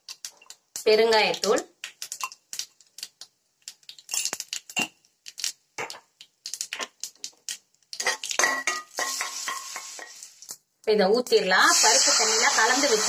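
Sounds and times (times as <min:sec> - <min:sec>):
hot oil sizzling: 0:00.0 - 0:13.0
spoon clinking on glass and metal: 0:04.1 - 0:05.0, 0:08.0 - 0:10.2.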